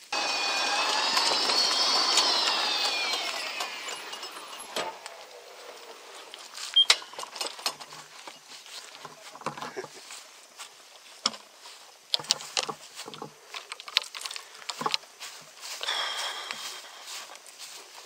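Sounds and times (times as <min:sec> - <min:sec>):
electric golf cart motor whine: 0:00.0 - 0:06.4
light clicks and rattles: 0:06.2 - 0:10.1, 0:12.1 - 0:15.1.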